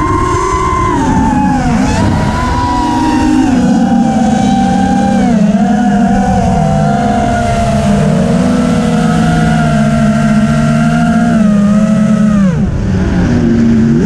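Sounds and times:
drone motors whining: 0:00.0 - 0:14.0.

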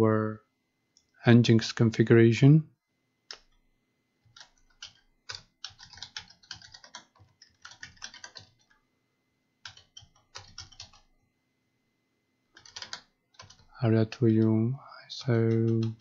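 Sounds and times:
computer keyboard typing: 0:04.2 - 0:08.8, 0:09.6 - 0:11.1, 0:12.5 - 0:14.5, 0:15.2 - 0:16.0.

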